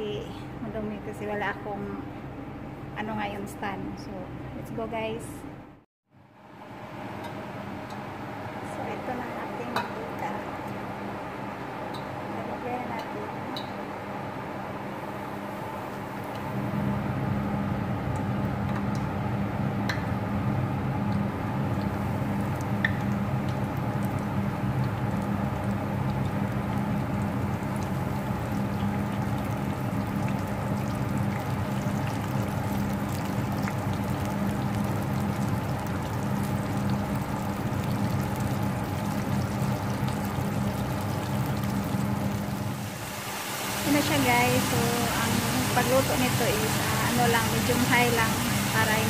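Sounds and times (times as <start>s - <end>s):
chicken deep-frying in oil: 6.4s - 49.0s
oil popping: 21.1s - 49.0s.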